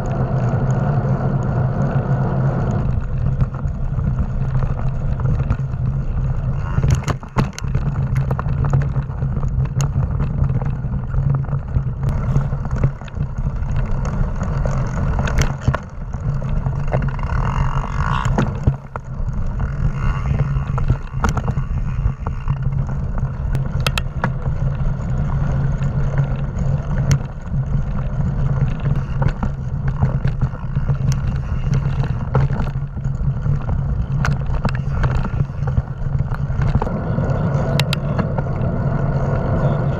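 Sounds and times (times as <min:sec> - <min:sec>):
bike rattling over bumps: 0:00.0 - 0:39.9
bike tyres rumbling: 0:00.0 - 0:39.9.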